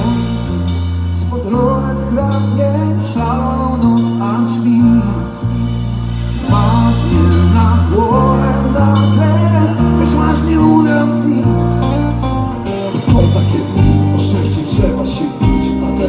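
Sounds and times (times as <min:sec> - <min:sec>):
live band playing: 0:00.0 - 0:16.0
man singing: 0:00.0 - 0:16.0
drum and cymbal hits: 0:12.7 - 0:16.0.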